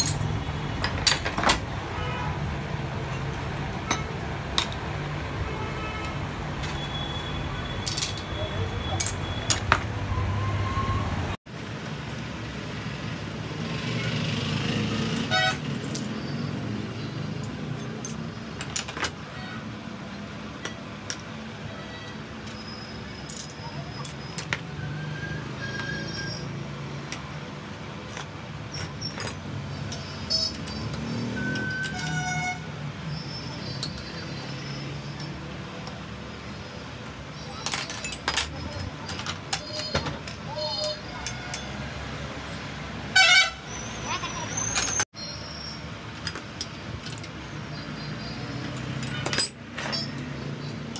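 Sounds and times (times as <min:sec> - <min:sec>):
metal parts clicking and tapping: 0:00.0 - 0:01.6, 0:03.1 - 0:04.9, 0:07.8 - 0:08.3, 0:09.0 - 0:09.9, 0:17.4 - 0:19.2, 0:20.1 - 0:21.4, 0:23.2 - 0:24.7, 0:28.0 - 0:32.4, 0:33.5 - 0:36.0, 0:37.4 - 0:42.7, 0:46.1 - 0:50.9
street traffic noise: 0:00.0 - 0:50.9
spanner clinking on metal: 0:07.8 - 0:08.3, 0:17.4 - 0:19.2, 0:28.1 - 0:32.4, 0:33.1 - 0:36.0, 0:37.4 - 0:42.6, 0:46.1 - 0:50.9
vehicle horn toot: 0:15.3 - 0:15.6, 0:31.8 - 0:32.7, 0:43.1 - 0:43.8.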